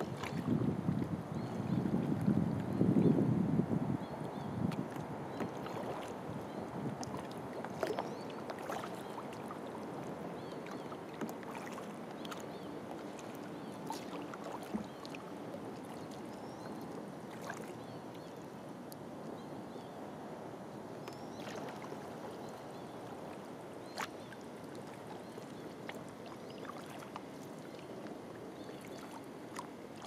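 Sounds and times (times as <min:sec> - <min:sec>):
paddle drips and splashes: 0:00.0 - 0:02.8, 0:04.2 - 0:19.0, 0:21.0 - 0:30.0
water washing along hull: 0:00.0 - 0:19.3, 0:20.8 - 0:30.0.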